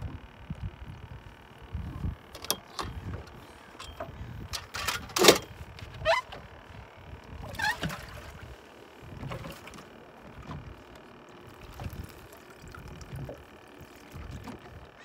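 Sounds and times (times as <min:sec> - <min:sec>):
water splashing against boat: 0:07.2 - 0:15.0.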